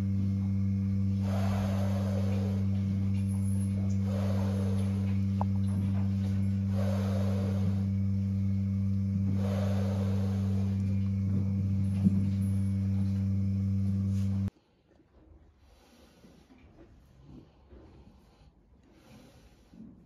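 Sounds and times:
low machine hum: 0.0 - 14.5.

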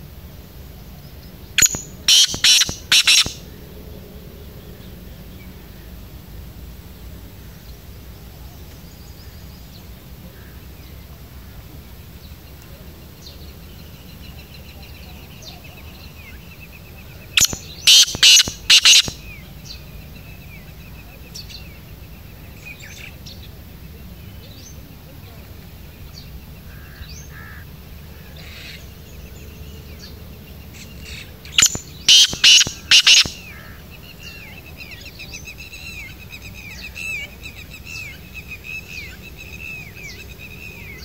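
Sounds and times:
faint rapid chirping: 0.8 - 3.6, 12.2 - 23.6, 28.7 - 41.0
bird harsh call: 1.6 - 3.5, 17.2 - 19.4, 30.8 - 34.4.

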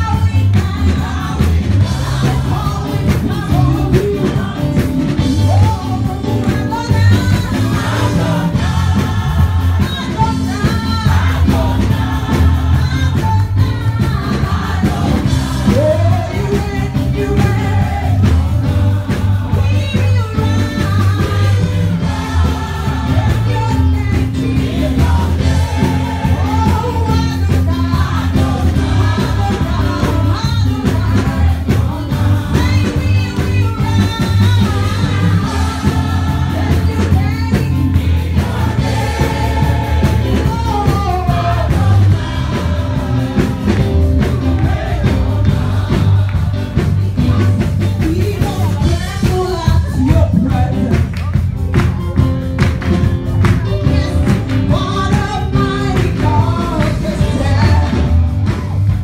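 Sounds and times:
gospel band music over pa: 0.0 - 59.0
heavy bass line: 0.0 - 59.0
person singing into microphone: 53.7 - 58.1.

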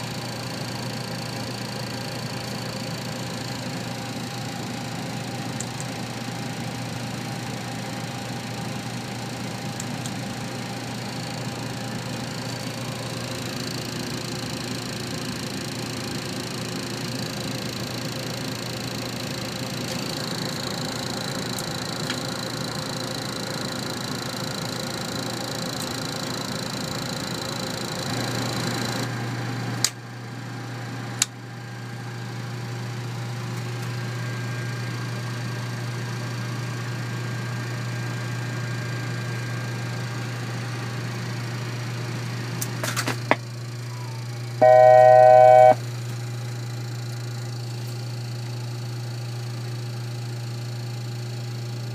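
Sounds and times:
fan hum: 44.2 - 46.2
electronic alert tone: 44.6 - 45.8
high whine: 44.6 - 45.8.

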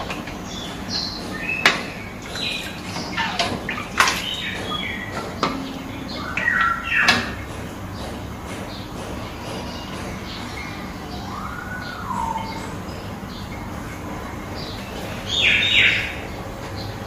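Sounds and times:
spatula knocking on pan: 1.2 - 10.2.

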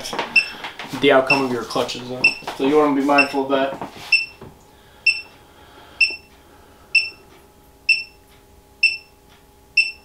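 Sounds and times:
incubator alarm beeping: 0.3 - 0.6, 1.2 - 1.6, 2.2 - 3.5, 4.1 - 4.4, 5.0 - 10.0.

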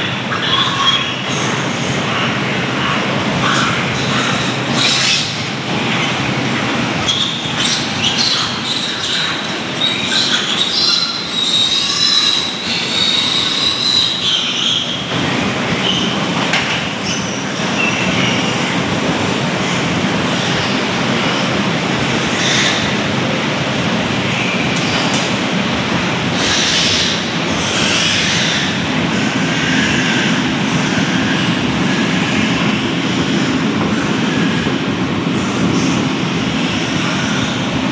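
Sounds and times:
steady noisy din: 0.0 - 37.9
piglets squealing: 7.0 - 14.8.

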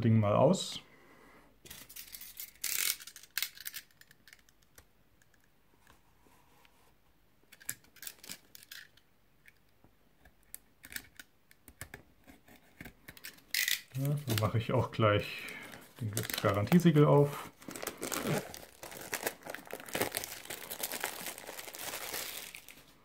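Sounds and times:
plastic shrink-wrap crinkling: 13.6 - 14.7, 15.4 - 23.0.

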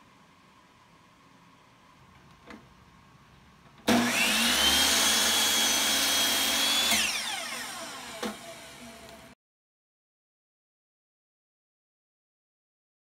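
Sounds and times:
electric power tool whining: 3.9 - 9.4.

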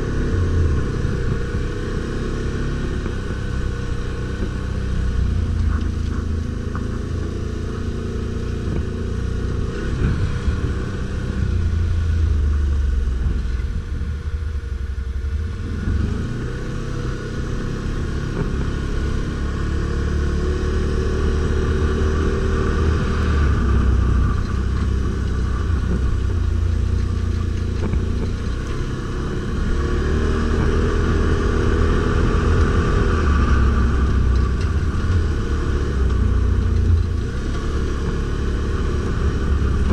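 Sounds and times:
atv engine revving: 15.6 - 39.9.

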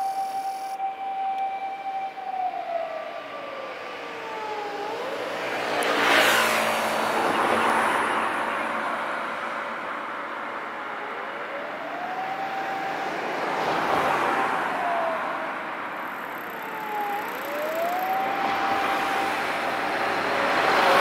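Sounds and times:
fire engine siren wailing: 0.0 - 9.6, 10.2 - 21.0
road traffic hiss: 15.3 - 21.0.

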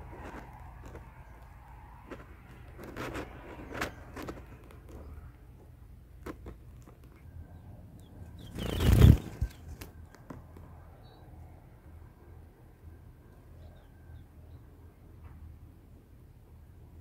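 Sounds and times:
leaves rustling: 8.4 - 9.9.

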